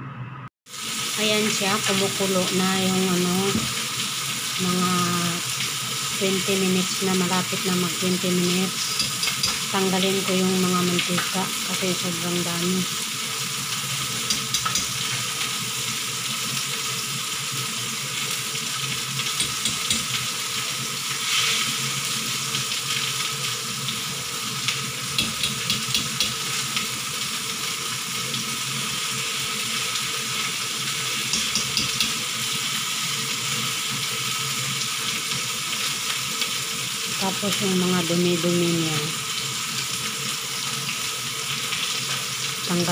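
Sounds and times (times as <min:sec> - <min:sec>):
soup boiling and bubbling: 0:00.7 - 0:01.4, 0:07.8 - 0:10.5, 0:12.6 - 0:37.3.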